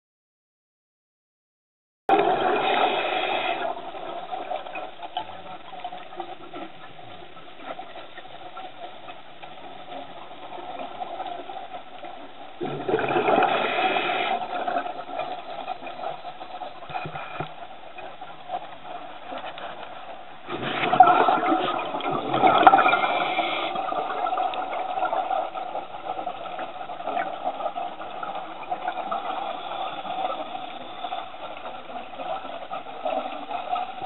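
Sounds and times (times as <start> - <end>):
scuba bubbles rushing: 2.1 - 8.7, 12.5 - 17.0, 20.3 - 34.0
hiss of water and breathing gear: 2.4 - 3.9, 13.0 - 15.3, 20.4 - 24.4.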